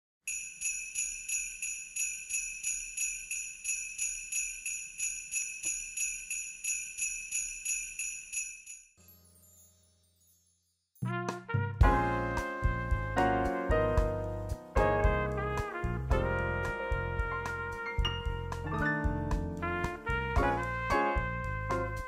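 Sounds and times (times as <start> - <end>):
sleigh bells shaken rhythmically: 0.3 - 10.8, 18.0 - 22.0.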